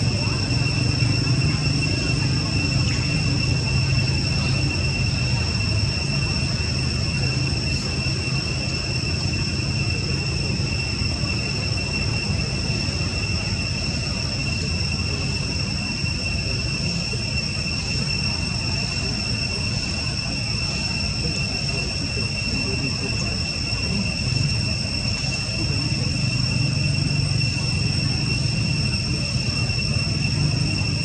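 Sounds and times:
insects droning: 0:00.0 - 0:31.0.

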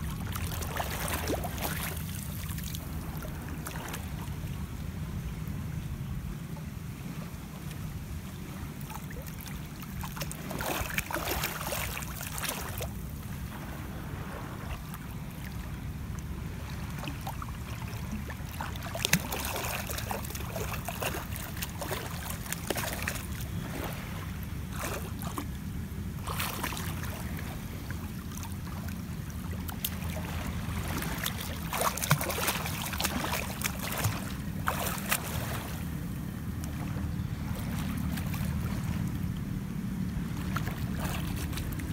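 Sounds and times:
seawater splashing and sloshing: 0:00.0 - 0:41.9
wind on microphone: 0:12.5 - 0:24.4.

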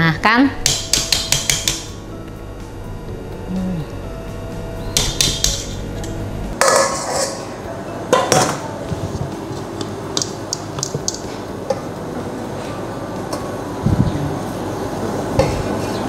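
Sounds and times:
utensils clinking against mixing bowl: 0:06.6 - 0:08.7.

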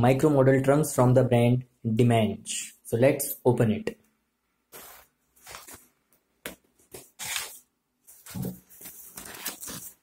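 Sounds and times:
plastic rustling: 0:07.0 - 0:10.0.

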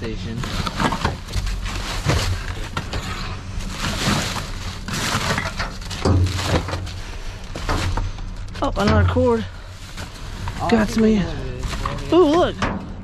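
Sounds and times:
plastic packaging crinkling: 0:00.2 - 0:07.6.

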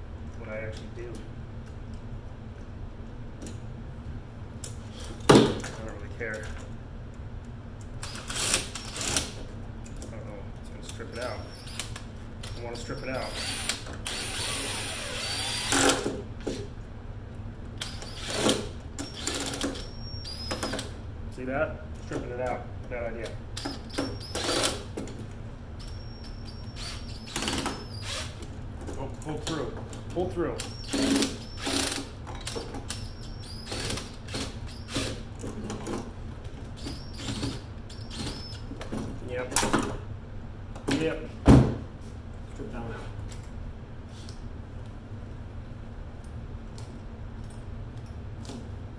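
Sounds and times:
cordless drill driving screw: 0:13.2 - 0:16.0, 0:23.6 - 0:24.8, 0:25.8 - 0:28.4, 0:30.7 - 0:35.2.

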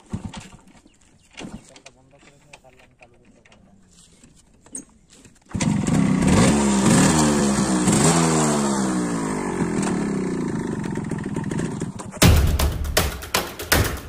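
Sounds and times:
motorcycle engine revving: 0:05.5 - 0:14.0.

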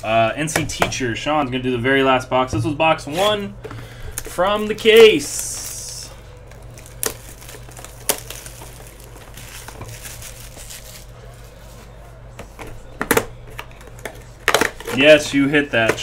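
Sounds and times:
low electrical hum: 0:00.0 - 0:16.0
plastic shrink-wrap crinkling: 0:04.2 - 0:11.9.

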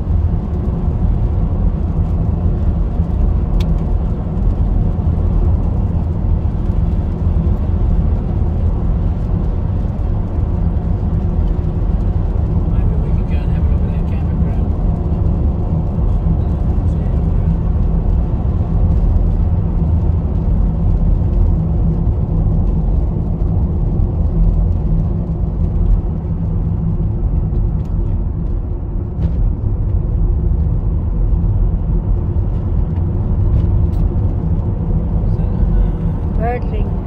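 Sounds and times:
engine and tyres on wet road: 0:00.0 - 0:37.0.

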